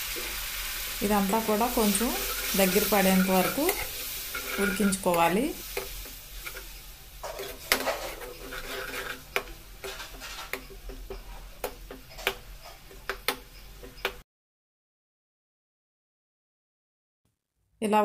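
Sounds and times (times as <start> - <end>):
faint sizzle: 0.0 - 14.0
spatula scraping metal pan: 1.2 - 14.2.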